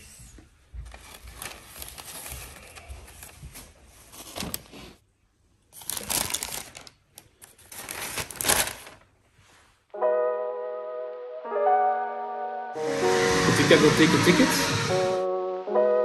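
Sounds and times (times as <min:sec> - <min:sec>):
crinkling rustling handling noise: 0:00.8 - 0:05.0, 0:05.7 - 0:09.8.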